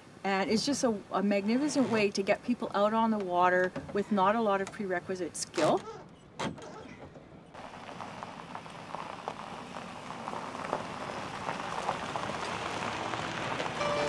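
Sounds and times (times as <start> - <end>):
tyres crunching over gravel: 7.5 - 14.0.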